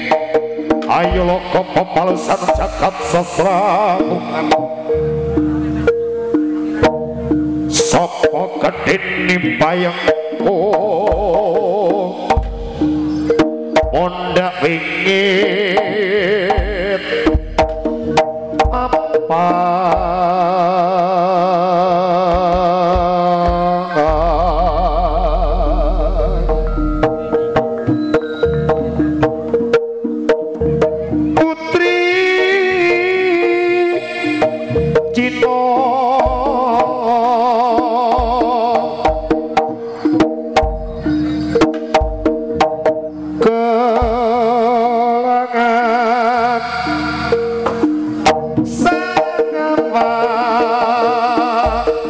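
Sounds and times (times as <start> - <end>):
sustained pitched tones: 0.0 - 20.7, 23.2 - 29.8
melody with fast vibrato: 0.0 - 20.8, 22.9 - 52.0
low steady drone: 24.0 - 27.8.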